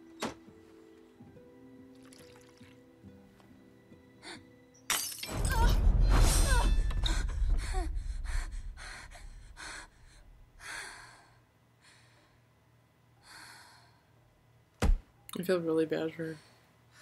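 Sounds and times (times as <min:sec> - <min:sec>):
loud hit with deep rumble: 0:05.4 - 0:10.6.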